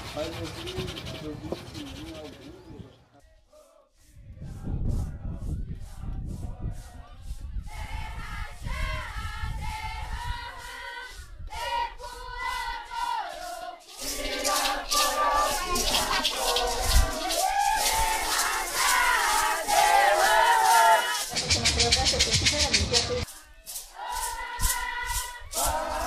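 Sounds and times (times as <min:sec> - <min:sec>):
group chanting: 0:03.2 - 0:05.3, 0:07.7 - 0:21.8, 0:23.2 - 0:26.0
shaken rattle beat: 0:04.0 - 0:26.0.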